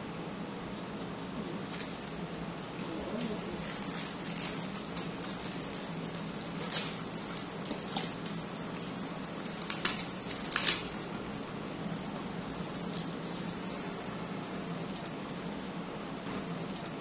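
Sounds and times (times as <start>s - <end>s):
steady low hum: 0.0s - 17.0s
cardboard and plastic wrap crinkling: 2.8s - 15.3s.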